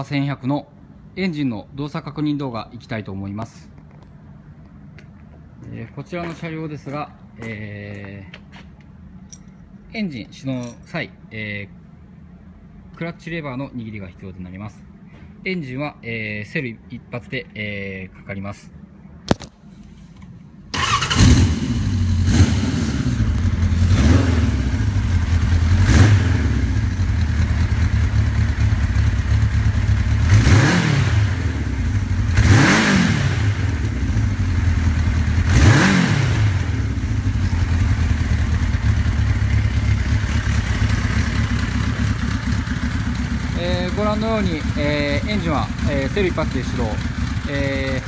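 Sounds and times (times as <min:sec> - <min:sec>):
motorcycle engine starting and revving: 0:20.7 - 0:48.0.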